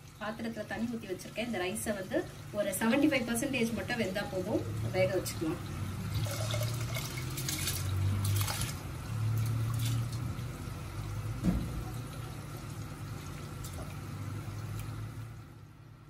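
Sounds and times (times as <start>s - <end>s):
low steady hum: 0.0s - 16.0s
rice poured into pot of water: 6.2s - 8.8s.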